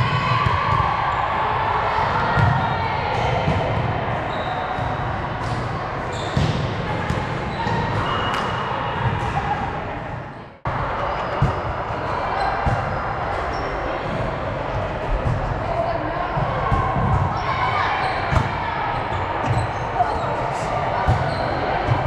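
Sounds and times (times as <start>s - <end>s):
voices echoing in a hall: 0.0s - 22.0s
sneakers squeaking on court floor: 4.2s - 5.1s, 6.1s - 9.3s, 11.1s - 14.2s, 18.0s - 22.0s.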